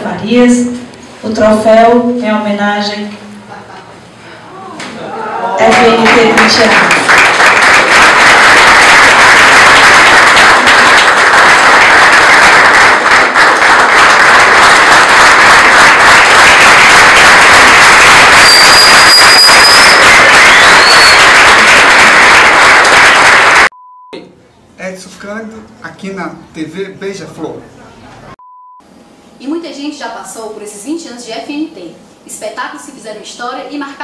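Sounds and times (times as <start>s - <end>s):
audience applauding: 5.6s - 23.7s.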